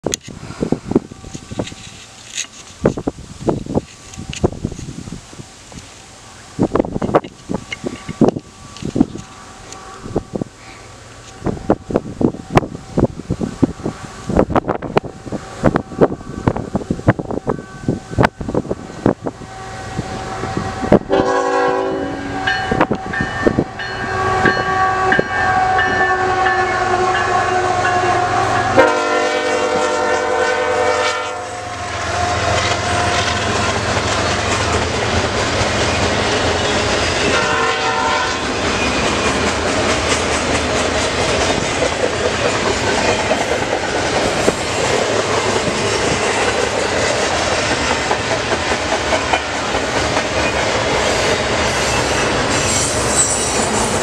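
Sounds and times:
train rumble: 0.0 - 54.0
wheels clacking over rail joints: 1.2 - 5.0, 5.7 - 10.5, 31.9 - 37.7, 38.3 - 54.0
train horn blasts: 19.2 - 33.9, 37.2 - 38.6.

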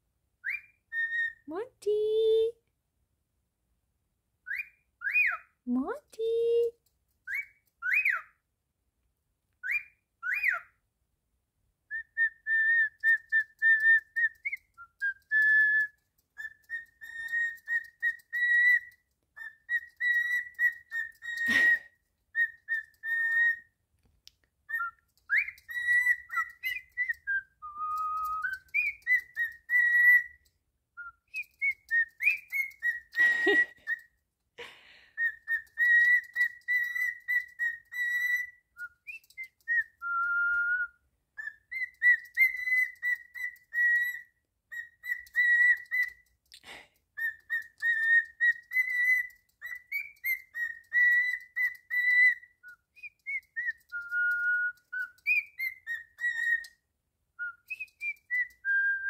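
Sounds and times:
cockatiel whistling: 0.4 - 1.4, 4.4 - 5.5, 7.2 - 8.3, 9.6 - 10.7, 11.9 - 23.7, 24.7 - 34.2, 35.2 - 46.3, 47.2 - 56.8, 57.4 - 59.0.

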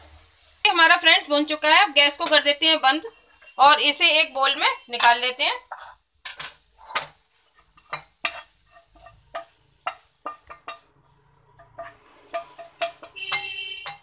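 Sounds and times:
spatula tapping pan and bowl: 5.0 - 14.0
spatula scraping: 5.7 - 14.0.

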